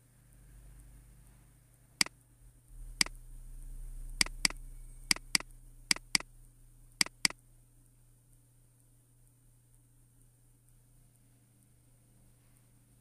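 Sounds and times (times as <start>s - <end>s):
computer mouse clicking: 4.2s - 6.3s, 7.0s - 7.4s.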